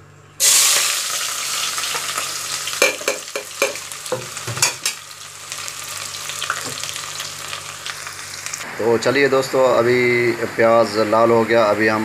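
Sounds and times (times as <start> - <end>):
onions sizzling in hot fat: 0.4 - 8.8
spoon knocking against pot: 2.8 - 5.0.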